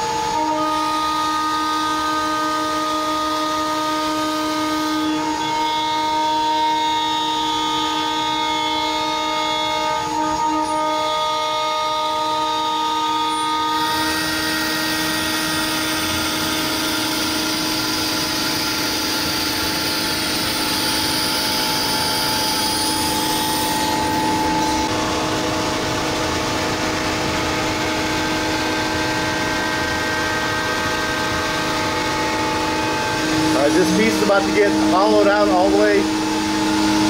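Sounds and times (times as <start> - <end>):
router spindle whine: 0.0 - 37.0
cutting and extraction rushing: 31.2 - 37.0.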